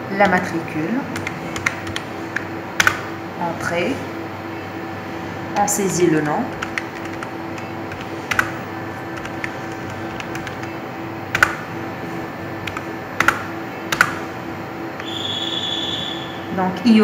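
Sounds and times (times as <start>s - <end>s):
keyboard keys clicking: 1.2s - 3.1s, 5.6s - 11.6s, 12.6s - 14.3s
high electronic beep: 15.0s - 16.5s.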